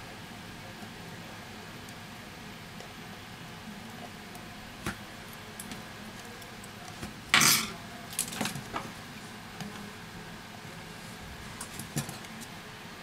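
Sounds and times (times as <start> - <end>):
metal tools clattering: 7.4 - 7.7.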